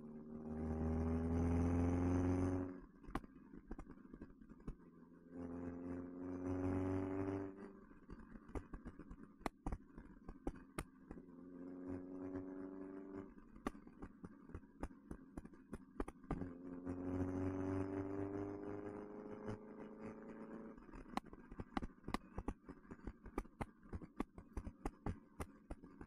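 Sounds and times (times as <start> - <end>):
car engine accelerating: 0.1 - 2.8, 5.3 - 7.8, 11.6 - 13.6, 16.1 - 21.7.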